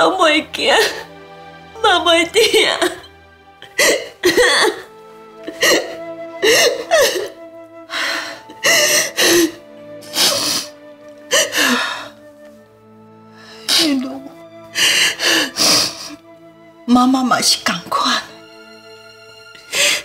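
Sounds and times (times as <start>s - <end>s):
soft background music: 0.0s - 20.0s
woman sobbing: 2.5s - 10.7s, 11.3s - 12.2s.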